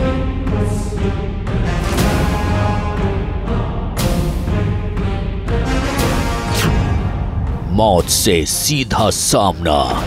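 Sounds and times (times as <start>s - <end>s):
dramatic music with low rumble: 0.0s - 10.0s.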